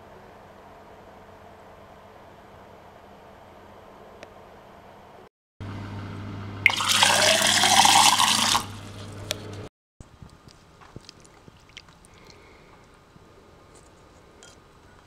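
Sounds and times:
steady low hum: 0.0 - 15.0
tap water filling a glass: 6.7 - 8.7.

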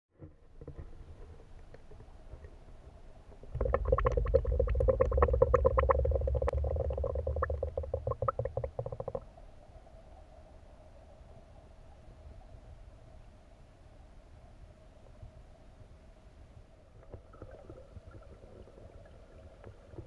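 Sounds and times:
underwater bubbling: 3.4 - 12.9, 17.0 - 20.0.

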